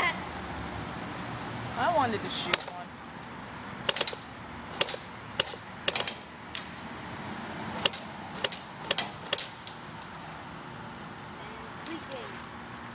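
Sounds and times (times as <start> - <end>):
airsoft gun shot clicks: 2.5 - 2.8, 3.9 - 4.2, 4.8 - 6.7, 7.8 - 9.8.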